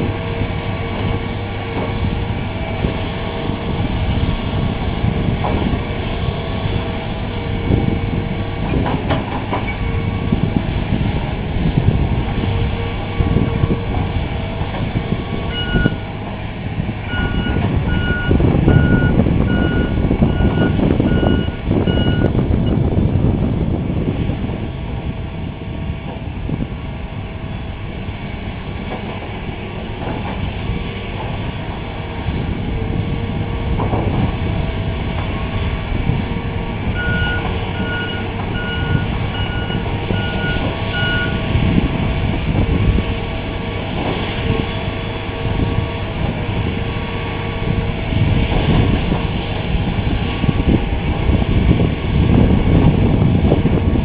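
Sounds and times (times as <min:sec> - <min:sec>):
excavator diesel engine: 0:00.0 - 0:54.0
backup alarm beeping: 0:15.5 - 0:16.0, 0:17.1 - 0:22.3, 0:37.0 - 0:41.4.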